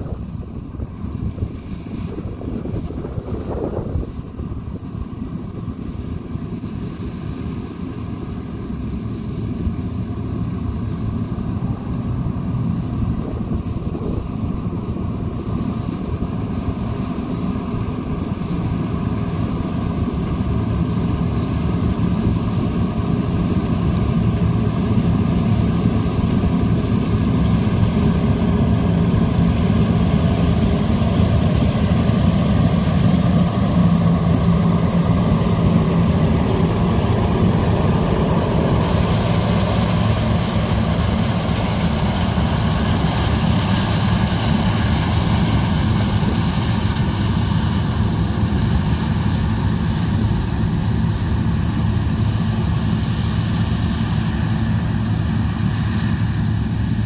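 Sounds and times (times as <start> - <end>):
combine harvester engine drone: 0.0 - 57.0
high hiss: 25.5 - 51.9.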